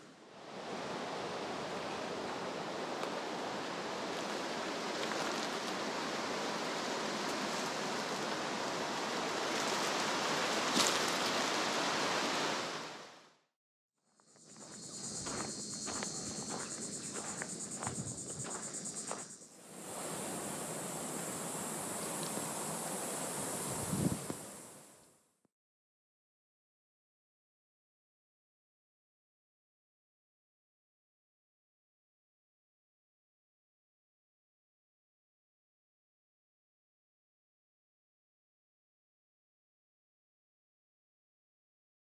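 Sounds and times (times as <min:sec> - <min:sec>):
insects trilling: 0:00.9 - 0:12.7, 0:14.1 - 0:25.1.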